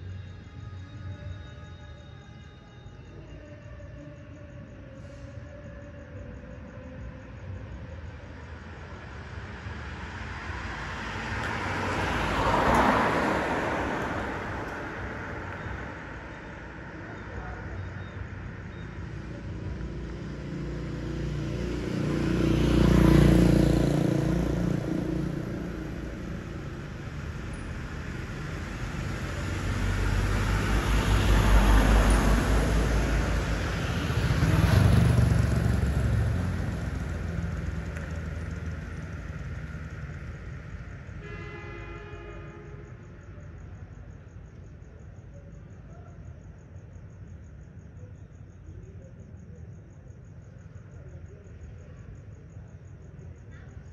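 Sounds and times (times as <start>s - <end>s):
crickets chirping: 0.0s - 53.9s
vehicles passing by: 5.3s - 41.3s
vehicle horn toot: 41.2s - 42.9s.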